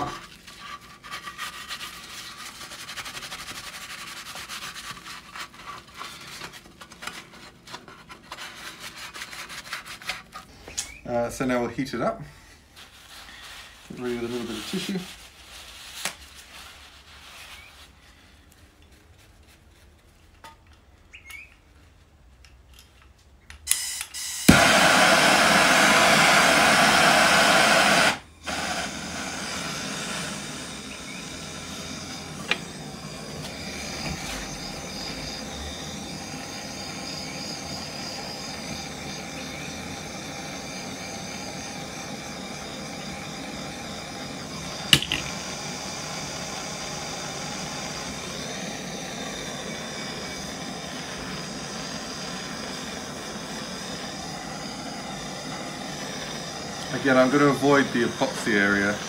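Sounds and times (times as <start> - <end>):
gas torch hissing: 10.4 - 15.3, 23.7 - 59.0.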